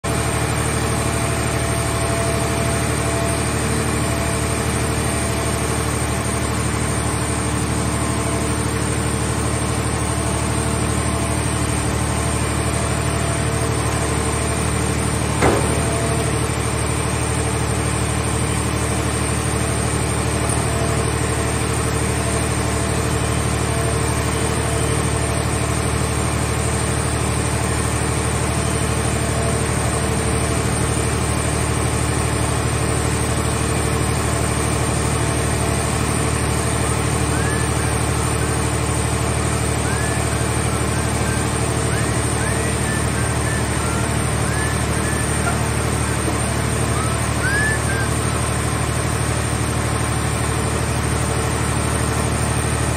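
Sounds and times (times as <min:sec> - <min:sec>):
hydraulic power unit humming: 0:00.1 - 0:52.9
sharp metal clank: 0:15.4 - 0:16.2.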